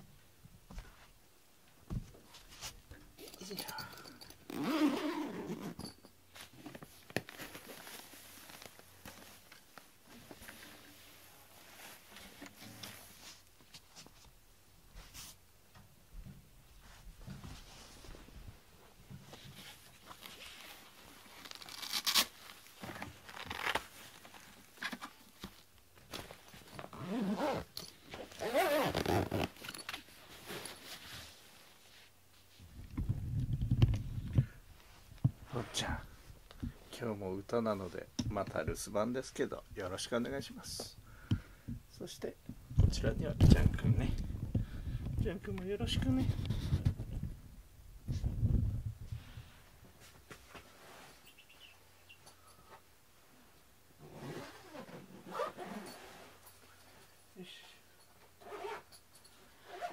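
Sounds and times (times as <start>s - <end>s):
soft rustling of bag: 2.1s - 15.4s, 16.6s - 41.0s, 42.0s - 59.9s
zipper being pulled closed: 4.5s - 5.8s, 26.8s - 29.7s, 54.0s - 56.4s, 58.4s - 58.9s, 59.6s - 59.9s.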